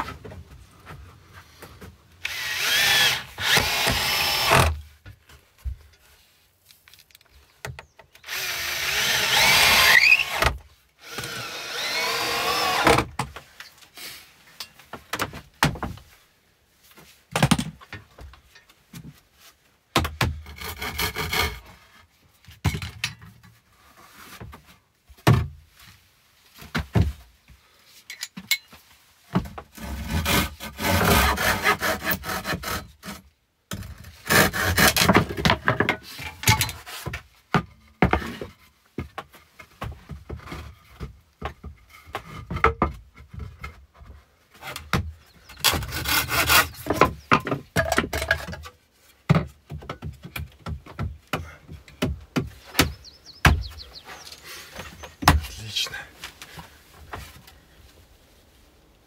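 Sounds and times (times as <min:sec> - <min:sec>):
cordless drill driving screws: 0:02.2 - 0:04.8, 0:08.2 - 0:13.0
handsaw sawing wood: 0:02.2 - 0:04.8, 0:08.3 - 0:13.1, 0:29.8 - 0:33.2, 0:34.2 - 0:35.3, 0:45.6 - 0:47.0
wood knocking: 0:54.8 - 0:55.6.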